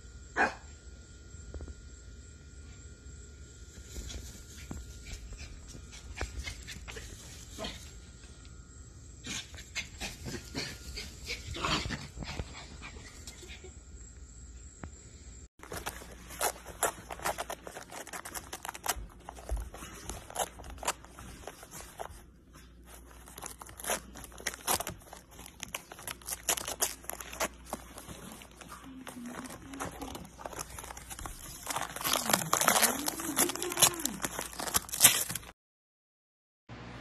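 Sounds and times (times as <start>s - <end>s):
foil paper crinkling and tearing: 15.6s - 35.6s
dog chewing: 22.9s - 35.4s.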